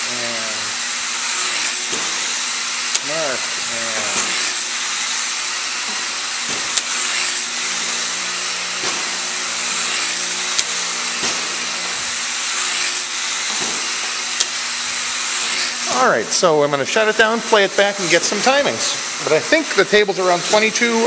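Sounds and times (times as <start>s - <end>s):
model airplane motor whirring: 0.0s - 21.0s
sharp tick: 14.4s - 14.6s.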